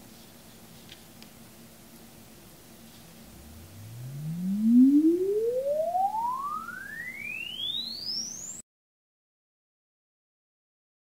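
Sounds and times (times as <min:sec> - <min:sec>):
rising sine sweep tone: 0:03.2 - 0:08.6.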